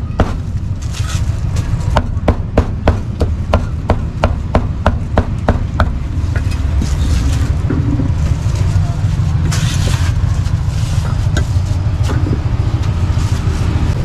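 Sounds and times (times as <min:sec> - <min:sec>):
street traffic rumble: 0:00.0 - 0:14.0
rustle: 0:00.6 - 0:01.9.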